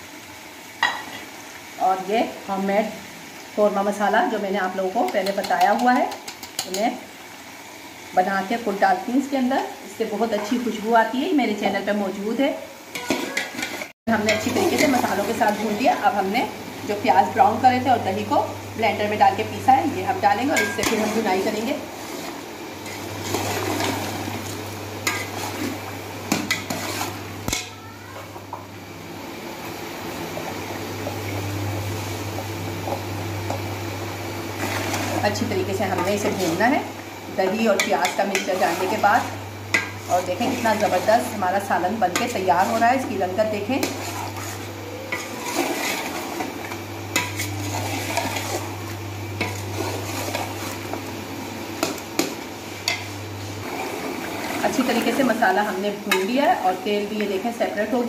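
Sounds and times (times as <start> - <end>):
food sizzling in oil: 0.0 - 58.0
metal spoon stirring in a pot: 5.1 - 6.8, 12.9 - 15.9, 20.4 - 27.8, 37.4 - 48.8, 49.4 - 51.0
spoon scraping steel pot: 26.4 - 27.7, 37.7 - 41.4.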